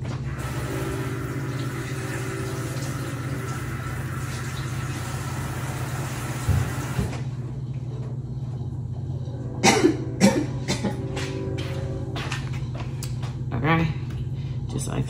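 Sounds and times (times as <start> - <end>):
kitchen tap running: 0.0 - 7.1
low steady hum: 0.0 - 15.0.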